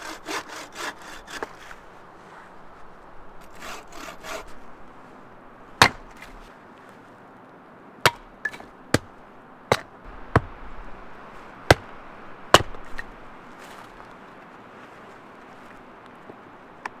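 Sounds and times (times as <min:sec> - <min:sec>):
hatchet chopping wood: 0:05.8 - 0:06.3, 0:08.0 - 0:10.6, 0:11.7 - 0:13.1.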